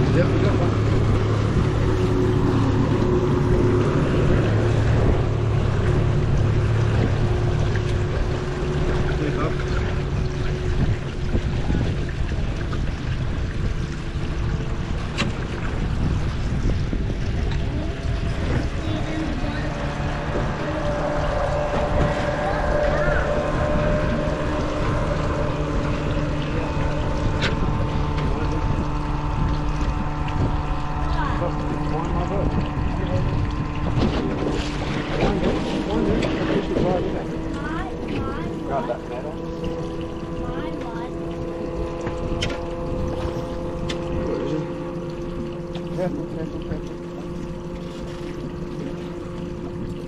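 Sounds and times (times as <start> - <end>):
wind noise: 0.0 - 38.8
outboard motor running: 0.0 - 50.0
water noise: 0.0 - 50.0.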